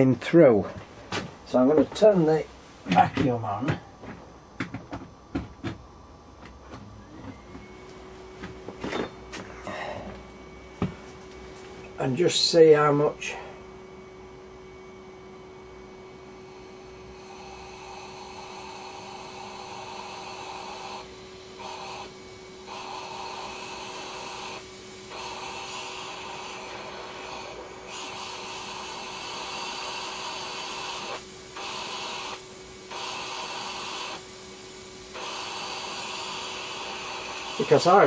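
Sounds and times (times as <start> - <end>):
vacuum cleaner motor hum: 16.0 - 38.0.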